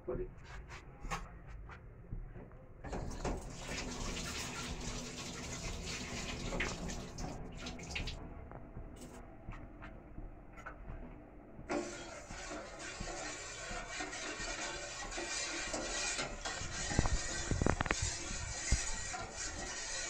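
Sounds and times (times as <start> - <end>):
pot hissing and crackling: 11.7 - 20.0.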